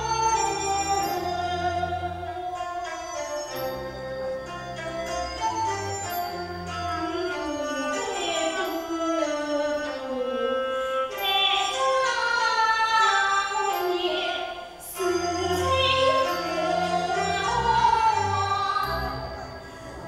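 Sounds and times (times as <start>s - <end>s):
instrumental accompaniment: 0.0s - 20.0s
opera singing: 10.2s - 20.0s.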